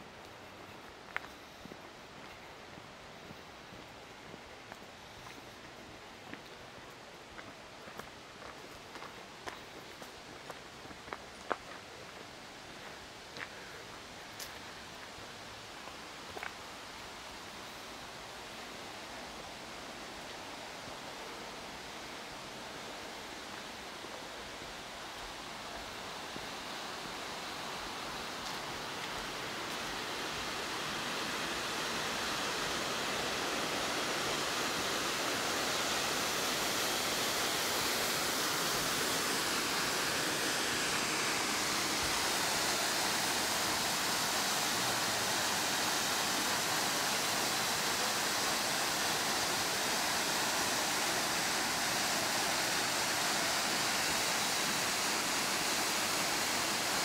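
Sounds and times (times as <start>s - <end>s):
flowing water rushing: 13.3s - 57.0s.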